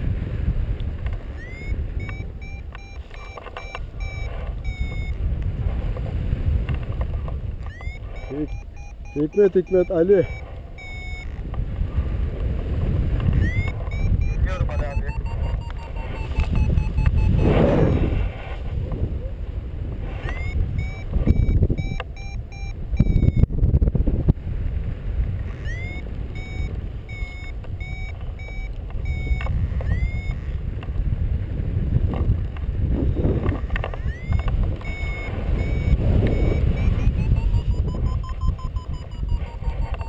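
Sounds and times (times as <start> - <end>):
wind rumble on microphone: 0.0 - 40.0
sharp clicks: 0.8 - 5.2, 6.6 - 11.6, 13.2 - 17.3, 25.6 - 30.9, 33.4 - 40.0
variometer beeping: 1.3 - 5.3, 7.6 - 11.5, 13.2 - 17.6, 20.2 - 23.5, 25.5 - 30.6, 33.4 - 40.0.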